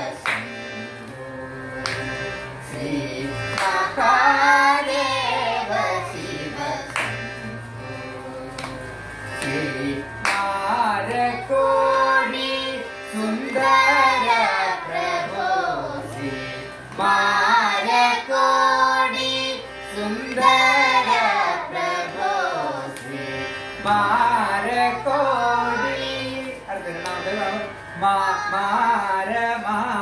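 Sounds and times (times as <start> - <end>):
children singing together: 0.0 - 29.4
harmonium holding notes: 0.0 - 30.0.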